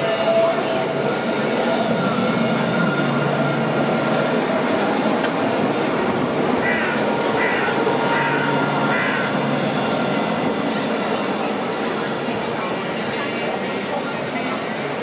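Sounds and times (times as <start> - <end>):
street noise: 0.0 - 15.0.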